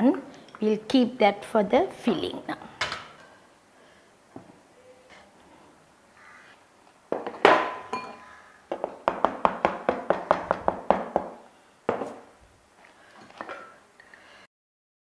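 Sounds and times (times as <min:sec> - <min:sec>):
knock on pastry board: 0:08.7 - 0:12.2.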